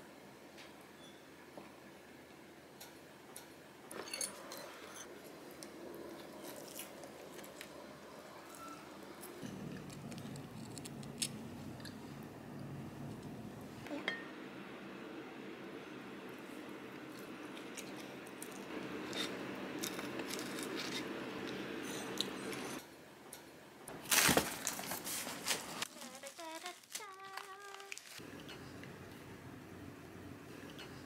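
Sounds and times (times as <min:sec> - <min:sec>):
packaging crinkling: 0:24.0 - 0:28.2.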